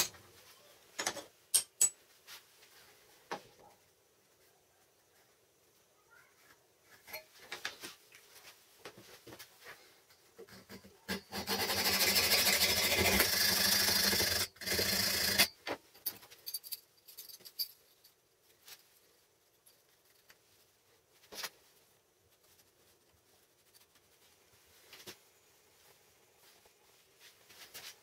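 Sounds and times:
hand saw rasping through steel: 11.1 - 15.5.

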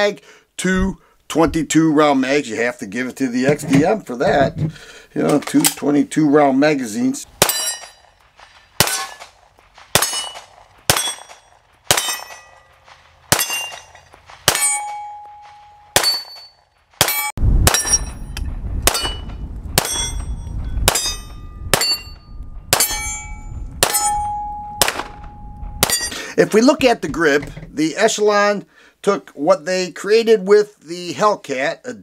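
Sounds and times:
steel target ringing: 7.4 - 8.2, 10.0 - 26.2
pistol shots: 8.8 - 12.6, 13.3 - 15.0, 15.9 - 16.4, 18.8 - 20.2, 20.8 - 22.0, 24.8 - 26.1
wind rumbling on microphone: 17.4 - 26.1.

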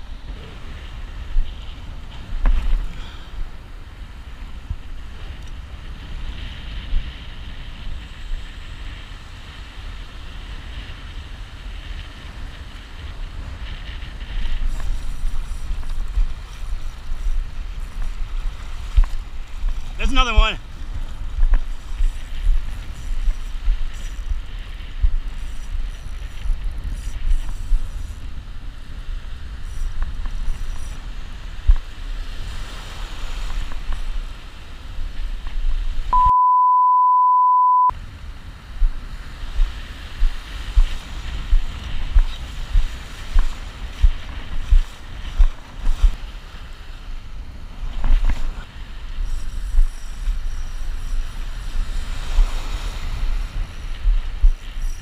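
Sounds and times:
wind buffeting microphone: 0.0 - 36.2, 37.9 - 55.0
steady beep: 36.1 - 37.9.

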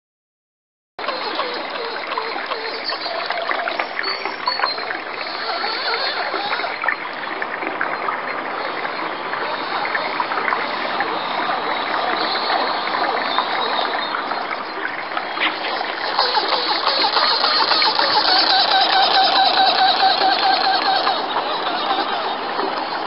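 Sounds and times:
paddles splashing in water: 1.0 - 23.0.

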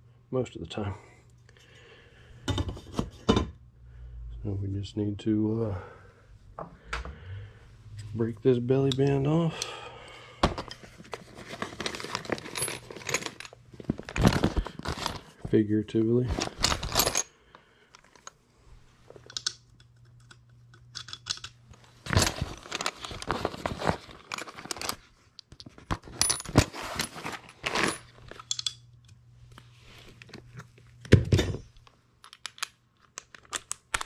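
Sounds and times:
metal tools clinking: 11.8 - 13.6, 16.3 - 17.3, 26.0 - 28.9.

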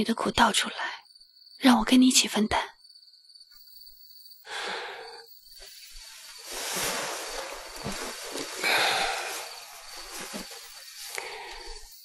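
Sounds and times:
bedding and clothes rustling: 5.6 - 12.0.

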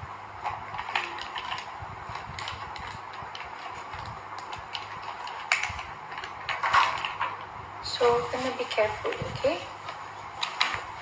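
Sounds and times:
low steady hum: 0.0 - 11.0
small objects clicking and tapping: 0.8 - 7.5.

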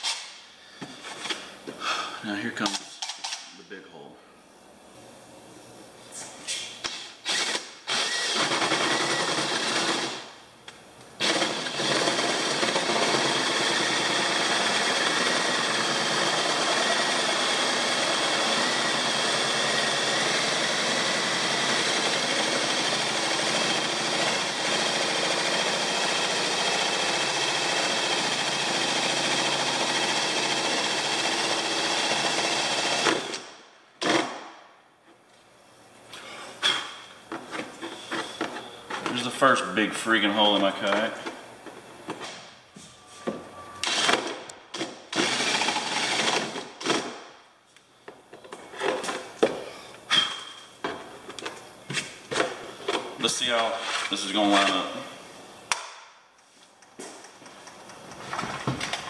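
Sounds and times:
power drill drilling: 7.2 - 10.2, 11.2 - 33.4, 43.8 - 44.5, 45.1 - 47.0.

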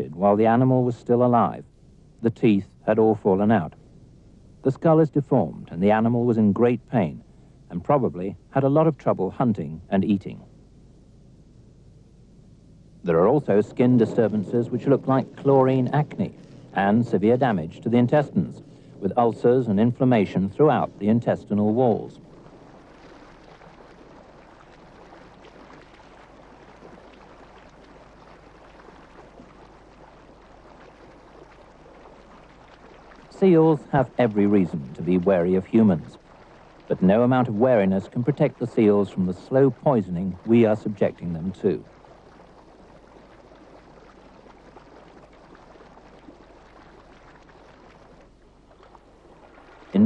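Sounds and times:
faint background hiss: 0.0 - 50.0
low hum: 0.0 - 50.0
sea water washing: 13.0 - 50.0.

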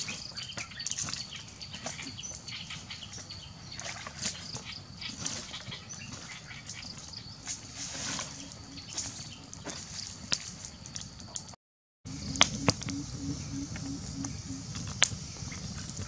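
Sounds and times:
outdoor background noise: 0.0 - 16.0
low pulsing: 12.1 - 14.8.

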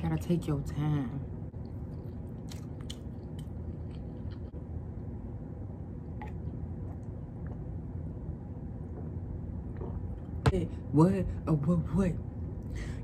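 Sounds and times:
steady low hum: 0.0 - 13.0
close-mouthed chewing: 1.6 - 4.6.

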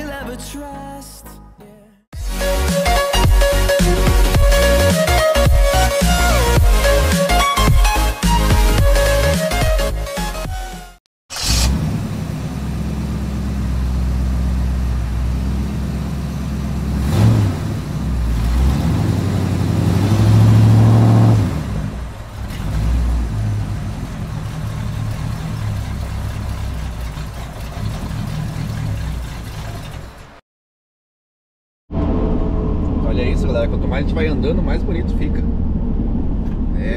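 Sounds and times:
car engine revving: 11.3 - 30.4.

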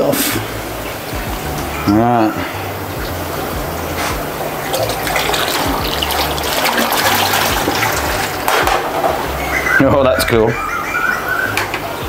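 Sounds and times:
water pouring and splashing: 0.0 - 9.3.

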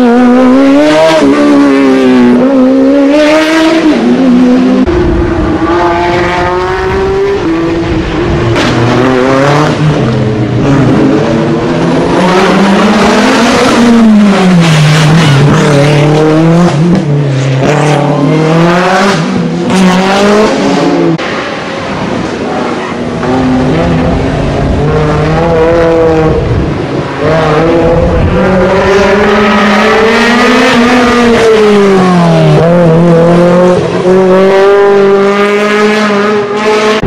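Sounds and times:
race car engines revving: 0.0 - 37.0.

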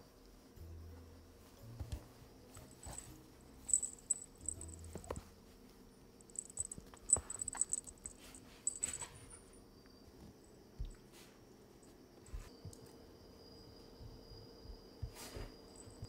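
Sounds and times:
dog and kitten scuffling in play: 15.0 - 16.0.

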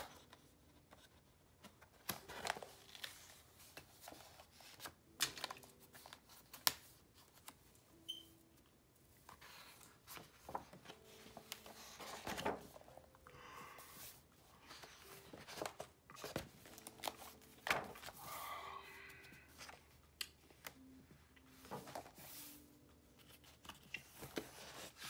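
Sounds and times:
paper pages rustling and flapping: 0.0 - 7.7, 9.2 - 13.1, 13.9 - 18.4, 21.6 - 22.5, 23.1 - 25.0.

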